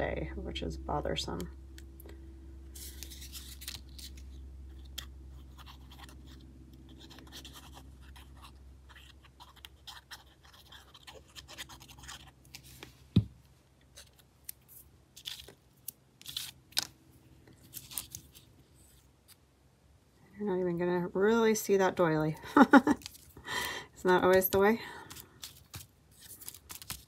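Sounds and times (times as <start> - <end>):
low steady hum: 0.0 - 27.0
paper rustling: 2.8 - 6.4, 17.5 - 19.4, 24.3 - 27.0.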